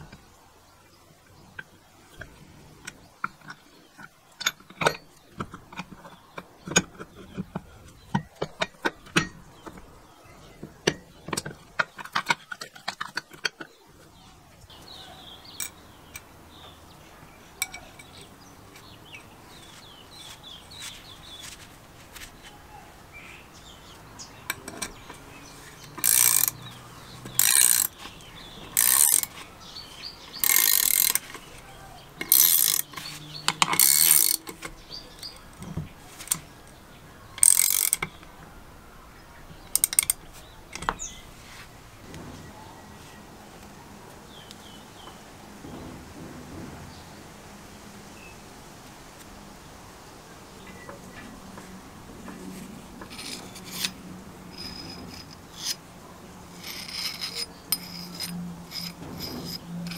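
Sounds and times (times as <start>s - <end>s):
ratchet wrench clicking: 25.8s - 28.1s, 28.7s - 29.4s, 30.4s - 31.4s, 32.2s - 33.0s, 33.6s - 35.5s, 37.4s - 38.2s, 39.8s - 40.2s, 56.6s - 59.9s.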